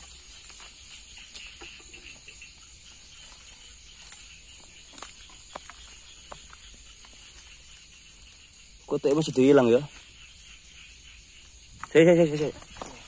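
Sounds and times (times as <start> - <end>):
footsteps rustling through dry grass: 0.0 - 8.7, 12.3 - 13.0
night insects chorus: 0.0 - 13.0.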